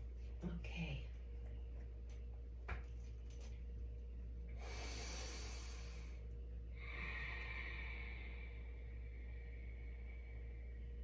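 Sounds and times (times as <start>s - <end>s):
steady low hum: 0.0s - 11.0s
person breathing deeply: 4.6s - 11.0s.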